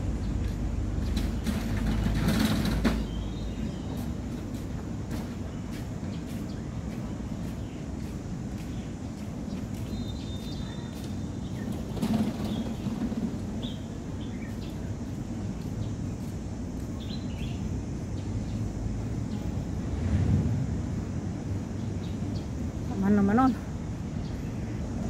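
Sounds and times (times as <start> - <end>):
wind rumbling on microphone: 11.2 - 25.0.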